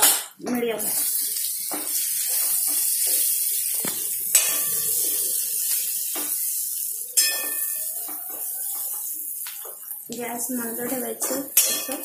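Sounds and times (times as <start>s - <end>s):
onions sizzling in oil: 0.6s - 12.0s
metal spoon scraping pan: 4.3s - 5.4s, 10.6s - 12.0s.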